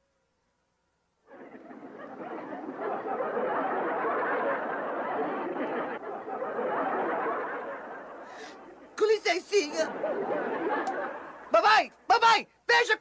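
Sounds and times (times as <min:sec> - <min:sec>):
audience laughter: 0:01.3 - 0:11.6.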